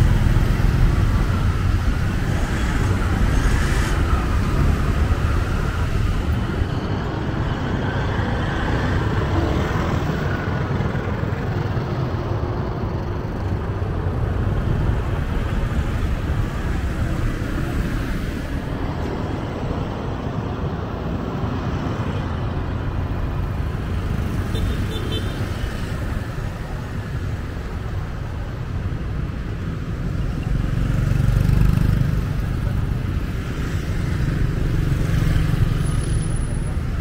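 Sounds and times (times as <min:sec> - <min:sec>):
tyres on road: 0:00.0 - 0:37.0
vehicle engines running: 0:00.0 - 0:37.0
motorbikes passing close: 0:29.6 - 0:37.0.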